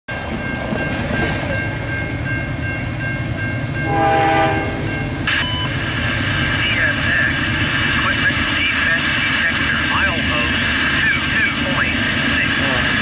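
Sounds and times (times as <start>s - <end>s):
crossing warning bell ringing: 0.1s - 6.6s
freight train rumble: 0.1s - 13.0s
locomotive air horn blast: 3.8s - 4.9s.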